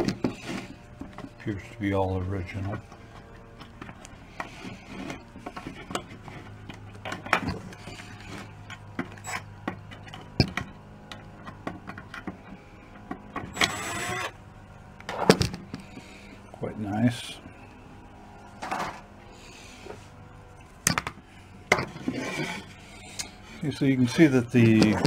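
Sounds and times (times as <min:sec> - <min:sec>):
cordless drill whirring: 0:13.4 - 0:14.4.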